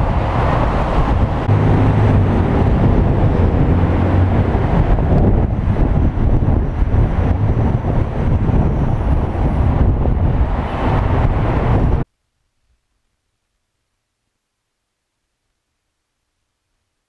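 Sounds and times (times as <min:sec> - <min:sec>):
street traffic rumble: 0:00.0 - 0:12.1.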